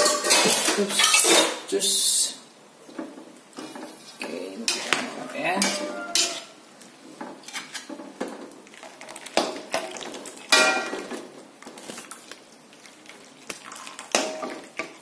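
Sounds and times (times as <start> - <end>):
strainer clanking on metal wok: 4.7 - 6.5.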